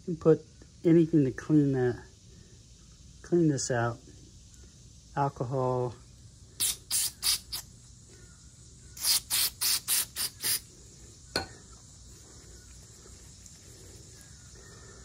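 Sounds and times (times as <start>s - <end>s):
aerosol spray hissing bursts: 6.6s - 7.7s, 9.0s - 10.7s.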